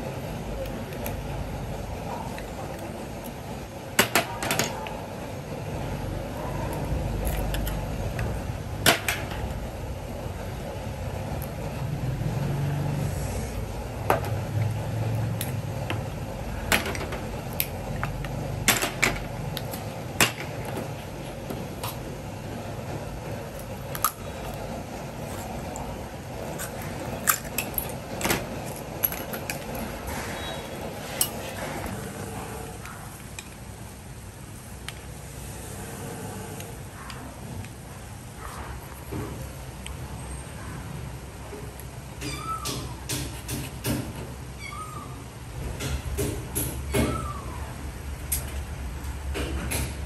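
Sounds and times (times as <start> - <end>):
kitchen scissors cutting shells: 23.5 - 30.0.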